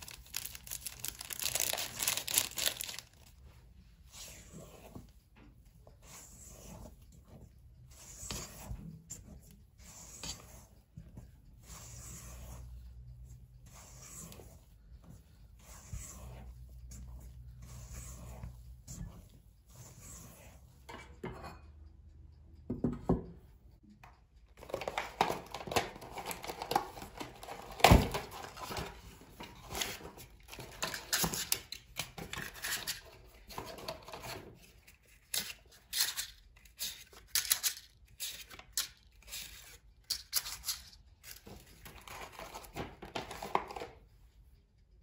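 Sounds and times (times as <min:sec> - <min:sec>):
paper liners crinkling: 0:00.0 - 0:03.4
spatula stirring batter in metal bowl: 0:00.0 - 0:21.9.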